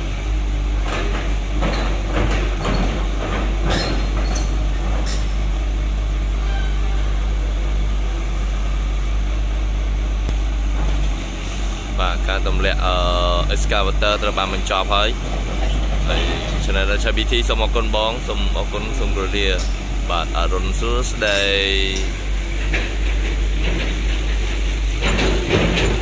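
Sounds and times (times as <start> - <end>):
excavator diesel engine running: 0.0 - 26.0
metal clanks and knocks: 0.8 - 5.5, 15.2 - 17.0, 21.2 - 26.0.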